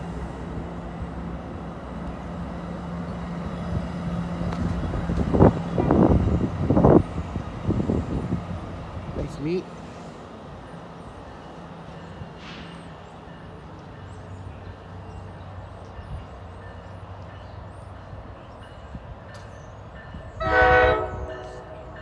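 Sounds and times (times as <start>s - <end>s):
train rumbling: 0.0s - 22.0s
train horn blast: 20.4s - 22.0s.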